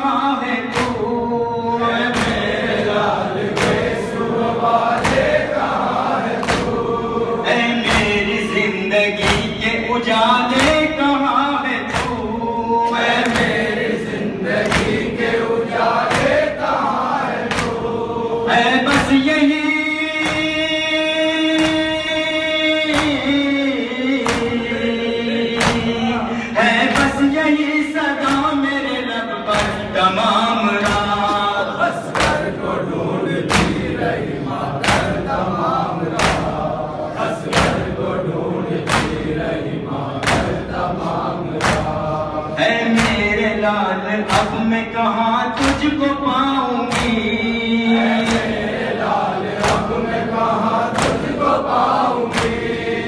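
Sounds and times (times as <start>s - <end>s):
men singing a lament in chorus: 0.0s - 53.0s
hands slapping chest: 0.7s - 1.1s, 2.1s - 2.8s, 3.4s - 4.2s, 4.8s - 6.9s, 7.8s - 8.2s, 9.2s - 9.6s, 10.5s - 10.9s, 11.9s - 12.4s, 13.0s - 14.0s, 14.6s - 18.0s, 21.5s - 22.1s, 22.9s - 23.3s, 24.2s - 24.7s, 25.6s - 26.0s, 28.2s - 28.6s, 29.5s - 29.9s, 30.8s - 31.4s, 32.1s - 32.8s, 33.4s - 34.0s, 34.8s - 35.4s, 36.1s - 36.7s, 37.4s - 38.0s, 38.8s - 39.4s, 40.2s - 42.1s, 42.9s - 43.3s, 44.3s - 44.6s, 45.6s - 45.9s, 46.9s - 47.2s, 48.2s - 48.8s, 49.5s - 50.2s, 50.9s - 52.9s.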